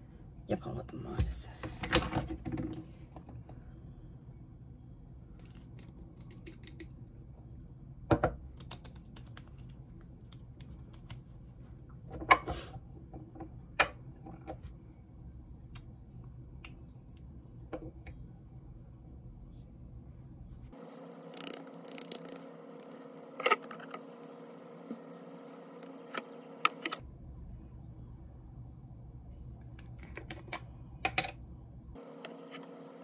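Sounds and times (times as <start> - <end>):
steady low hum: 0.0 - 33.0.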